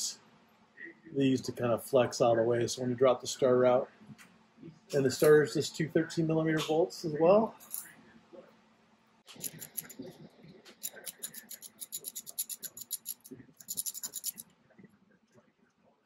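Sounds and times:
socket ratchet clicking rapidly: 0:09.3 - 0:10.0, 0:10.8 - 0:14.4.

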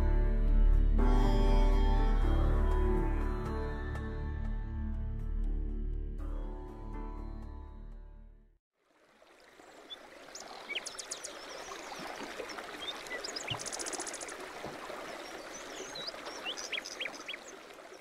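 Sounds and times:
running stream: 0:08.7 - 0:18.0
birds chirping: 0:09.5 - 0:18.0.

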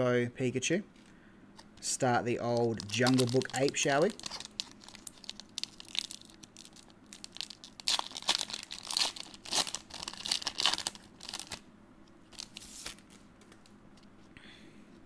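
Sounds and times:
foil wrapper crackling: 0:02.4 - 0:11.6.

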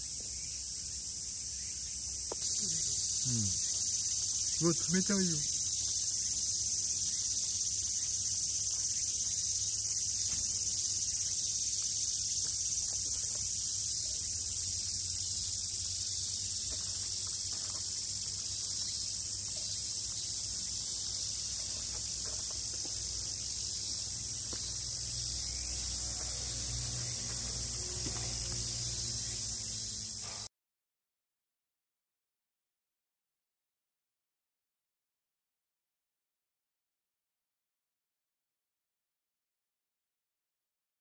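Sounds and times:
insects shrilling: 0:01.5 - 0:30.5.

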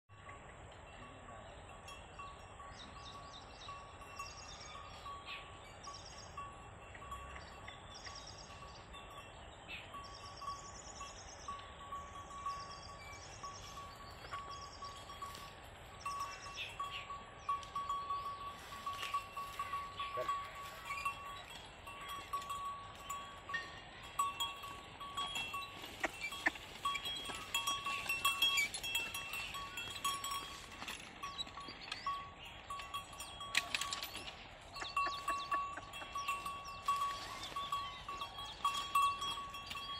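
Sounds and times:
small bell clinking: 0:00.2 - 0:39.9.

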